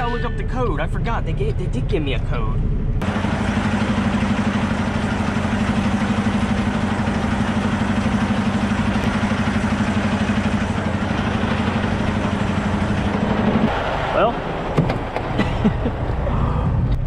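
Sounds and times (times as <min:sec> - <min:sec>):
diesel truck engine idling: 0:02.8 - 0:17.0.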